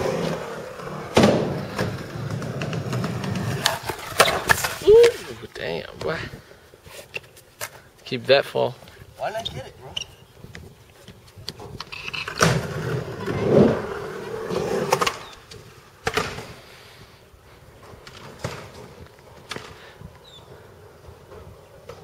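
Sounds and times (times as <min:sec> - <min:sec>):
skateboard wheels rolling: 0:00.0 - 0:07.8, 0:08.7 - 0:22.0
skateboard clacking on concrete: 0:01.1 - 0:05.2.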